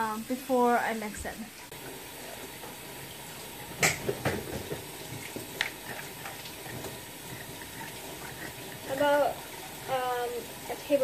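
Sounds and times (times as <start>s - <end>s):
kitchen utensils knocking and clicking: 3.8s - 8.4s.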